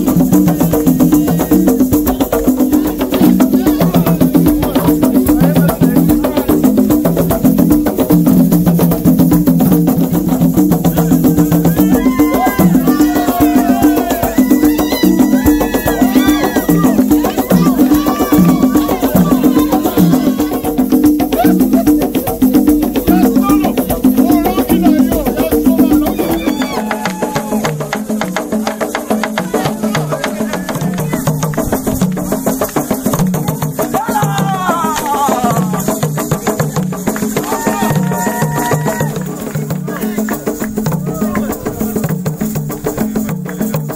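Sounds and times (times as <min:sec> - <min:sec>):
hand drumming: 0:00.0 - 0:43.9
high sliding vocal call: 0:10.8 - 0:27.0.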